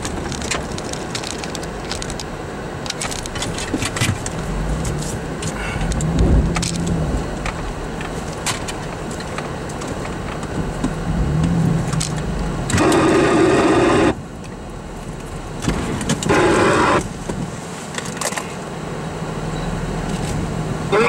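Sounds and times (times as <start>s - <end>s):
car engine and road noise: 0.0s - 21.0s
sudden blasts of rushing noise: 4.4s - 7.9s.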